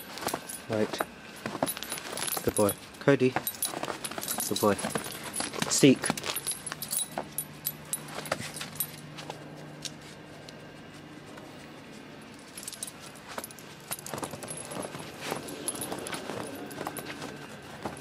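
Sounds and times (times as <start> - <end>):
metal clips jingling: 0.0 - 9.2, 12.4 - 18.0.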